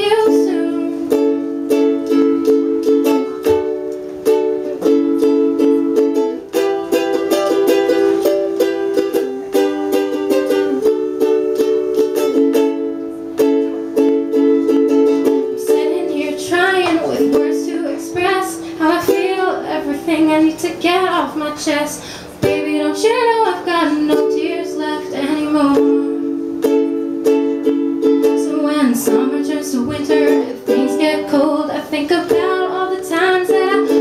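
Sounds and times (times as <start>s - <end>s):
woman singing: 0.0s - 2.4s, 15.2s - 26.4s, 28.2s - 34.0s
ukulele strumming chords: 0.0s - 34.0s.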